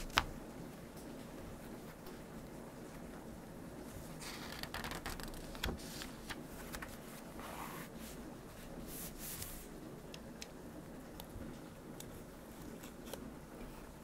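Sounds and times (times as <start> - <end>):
notebook pages rustling: 4.0 - 9.8.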